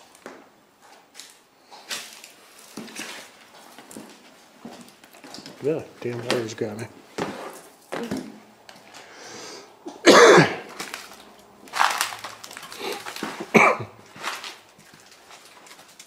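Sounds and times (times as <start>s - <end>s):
person coughing: 9.8s - 10.7s, 12.8s - 14.0s.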